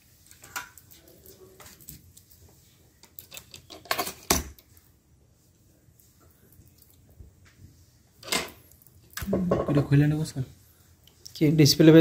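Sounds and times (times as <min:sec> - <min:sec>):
small tools clicking and clattering: 0:03.0 - 0:04.6.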